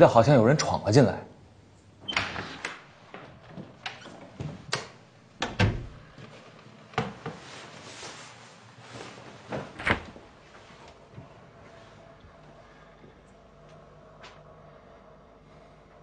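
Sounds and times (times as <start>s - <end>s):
knocks and clunks of doors: 2.1s - 6.1s
faint rustling: 6.0s - 12.0s.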